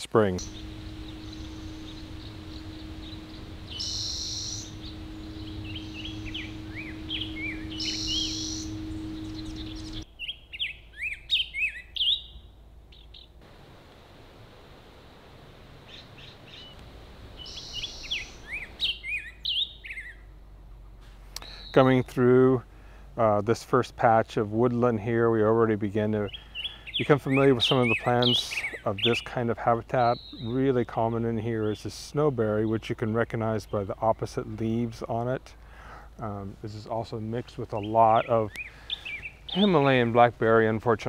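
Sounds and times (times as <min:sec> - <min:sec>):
steady low hum: 0:00.0 - 0:10.1, 0:12.8 - 0:18.9
songbirds singing: 0:00.0 - 0:13.4, 0:15.8 - 0:22.6, 0:24.2 - 0:41.0.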